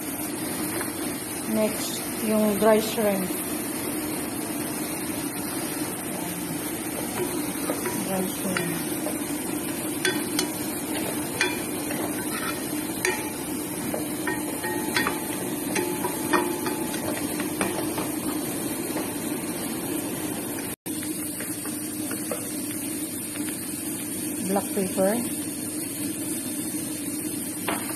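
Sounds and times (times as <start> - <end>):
wooden spatula scraping a pot: 6.7 - 18.0.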